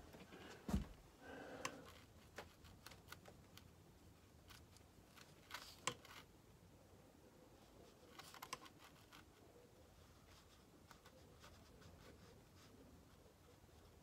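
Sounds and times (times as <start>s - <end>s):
soft thump: 0.7s - 1.0s.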